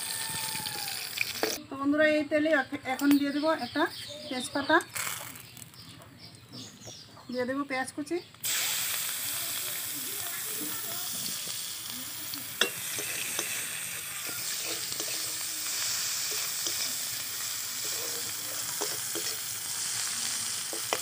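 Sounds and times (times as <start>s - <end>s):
onion sizzling in oil: 0.0s - 1.6s, 4.8s - 5.8s, 8.3s - 21.0s
metal spatula scraping pan: 12.6s - 19.5s.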